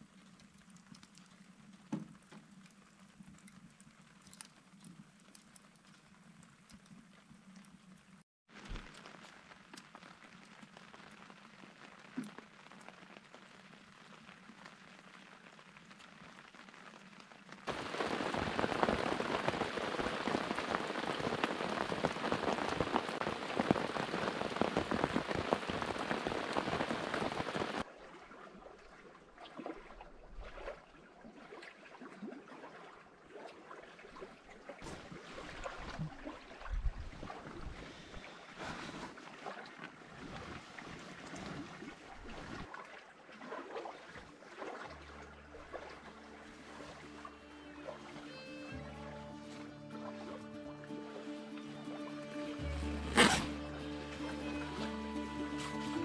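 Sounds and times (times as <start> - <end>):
rain pattering on canvas tarp: 0.0 - 27.9, 34.1 - 56.0
water dripping: 0.0 - 27.9.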